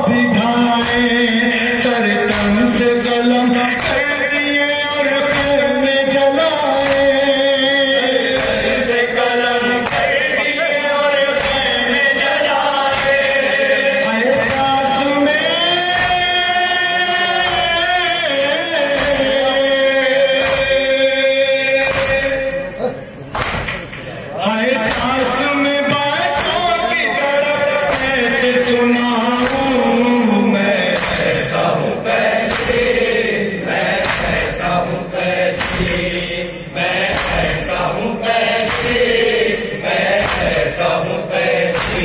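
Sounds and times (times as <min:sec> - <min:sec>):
men chanting into a microphone: 0:00.0 - 0:23.2, 0:24.0 - 0:42.0
chest beating slaps: 0:00.7 - 0:02.9, 0:03.7 - 0:04.3, 0:05.2 - 0:05.8, 0:06.7 - 0:09.0, 0:09.6 - 0:10.5, 0:11.3 - 0:15.1, 0:15.8 - 0:16.6, 0:17.2 - 0:21.0, 0:21.8 - 0:22.7, 0:23.3 - 0:24.2, 0:24.8 - 0:25.4, 0:26.2 - 0:26.9, 0:27.8 - 0:28.4, 0:30.8 - 0:31.6, 0:32.3 - 0:34.7, 0:35.3 - 0:36.3, 0:37.0 - 0:42.0.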